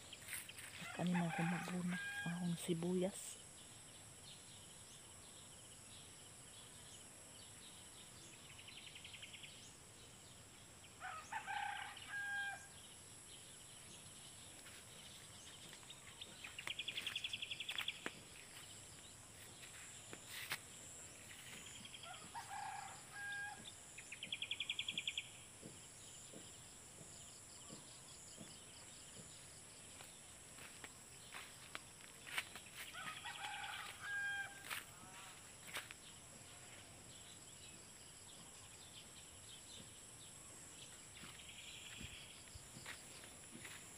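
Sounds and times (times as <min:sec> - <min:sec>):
rooster crowing: 0:00.8 - 0:02.3, 0:11.0 - 0:12.7, 0:22.0 - 0:23.6, 0:32.9 - 0:35.3.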